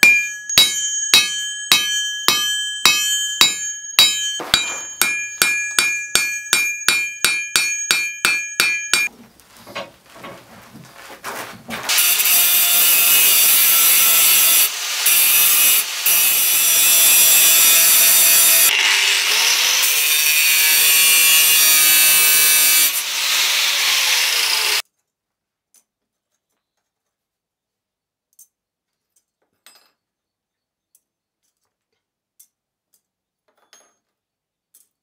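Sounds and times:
angle grinder cutting steel: 0.0 - 9.1, 11.9 - 24.8.

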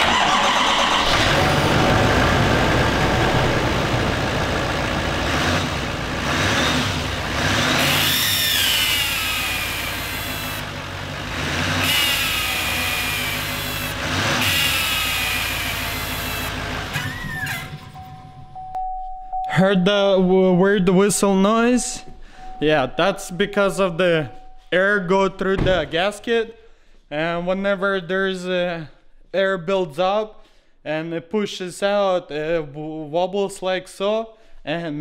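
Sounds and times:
truck engine starting and running: 0.0 - 18.7.

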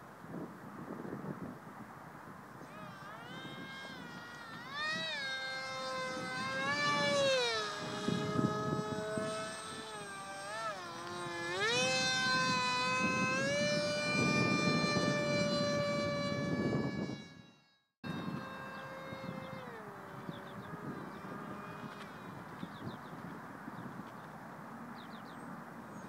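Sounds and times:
low wind rumble: 0.0 - 17.4
model jet motor whining: 2.5 - 24.2.

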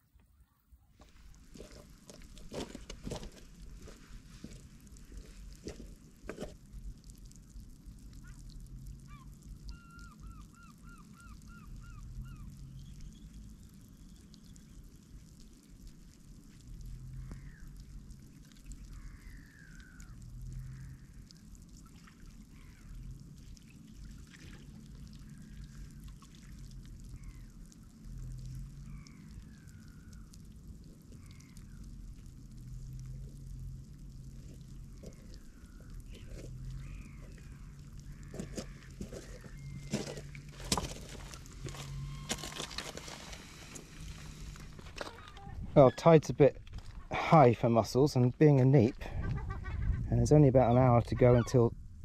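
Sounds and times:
birds calling: 9.1 - 14.5, 22.0 - 23.0, 27.1 - 27.6, 28.8 - 30.3, 34.6 - 48.1, 48.9 - 51.8
low rumble: 22.4 - 47.3, 48.2 - 50.6, 51.7 - 52.0.

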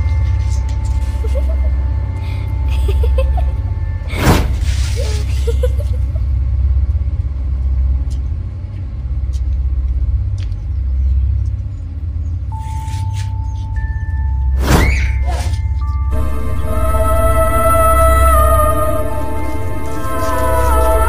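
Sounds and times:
deep steady rumble: 0.0 - 12.5, 13.4 - 21.0
thin steady tone: 16.1 - 21.0.

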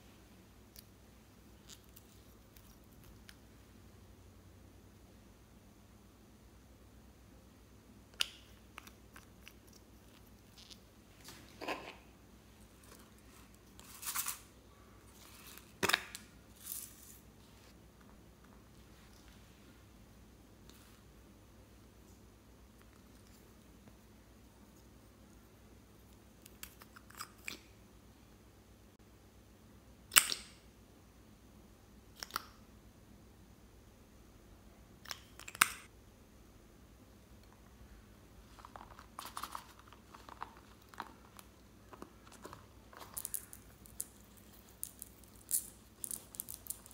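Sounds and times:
plastic container rustling: 38.5 - 43.6.

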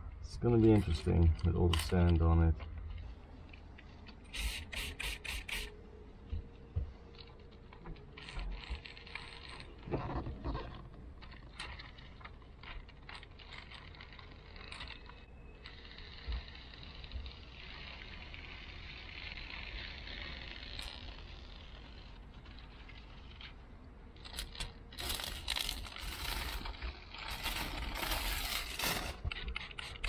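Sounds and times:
small clicks and knocks: 6.2 - 18.1, 18.8 - 30.0.

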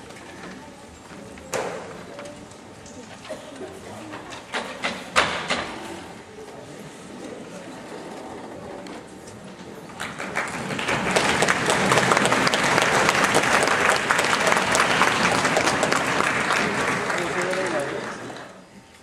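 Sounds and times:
audience applause: 9.9 - 18.6.

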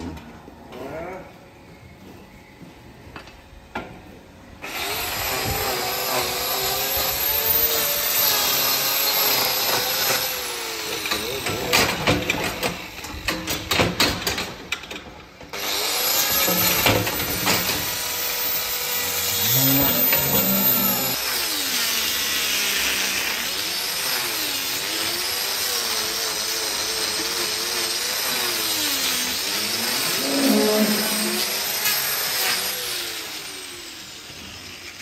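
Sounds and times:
angle grinder grinding hoof: 4.6 - 11.9, 15.6 - 33.4.

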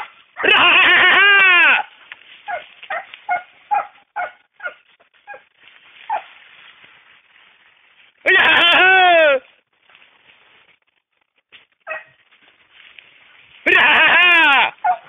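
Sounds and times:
dogs yelping and barking: 0.0 - 1.4, 2.4 - 6.3, 11.8 - 12.2, 14.8 - 15.0
dog crying out: 0.0 - 1.9, 2.5 - 5.4, 13.6 - 15.0.

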